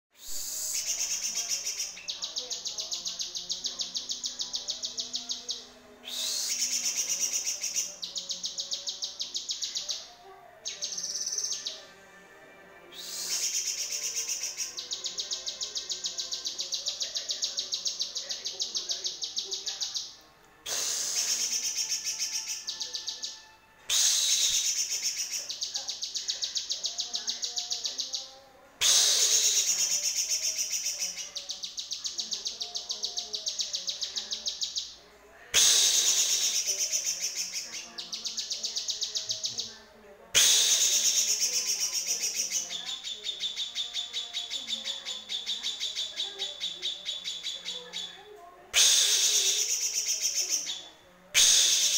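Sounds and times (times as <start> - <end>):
bird singing rapid high notes: 13.0 - 28.3.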